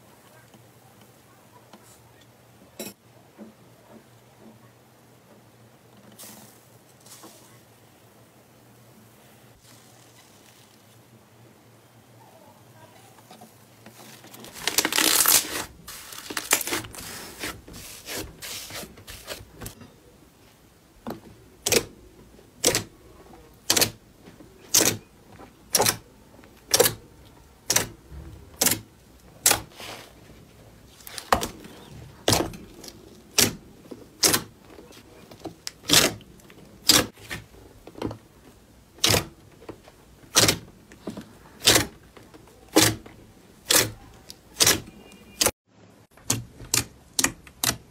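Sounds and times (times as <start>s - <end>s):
crunchy slime crackling: 13.9s - 19.7s.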